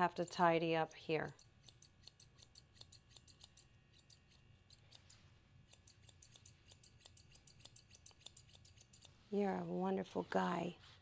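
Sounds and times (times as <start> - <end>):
grooming shears snipping dog fur: 0.0 - 11.0.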